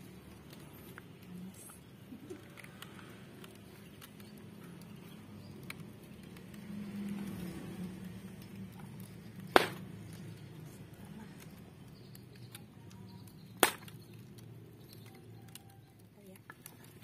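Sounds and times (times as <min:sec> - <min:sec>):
wood fire crackling: 0:00.0 - 0:17.0
loud sharp crack: 0:09.5 - 0:10.0, 0:13.6 - 0:14.0.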